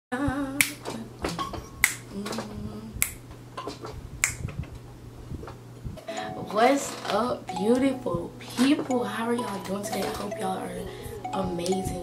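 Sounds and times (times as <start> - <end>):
person humming: 0.1 - 3.1
steady low hum: 0.1 - 12.0
finger snaps: 0.6 - 0.8, 1.8 - 2.1, 3.0 - 3.2, 4.2 - 4.5.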